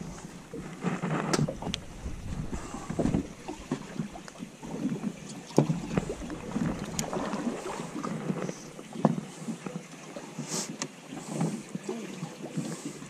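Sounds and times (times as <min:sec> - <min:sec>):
wind on microphone: 0:00.0 - 0:04.2, 0:05.6 - 0:08.8
waves slapping boat hull: 0:00.0 - 0:13.0
knocks on boat: 0:02.3 - 0:03.9.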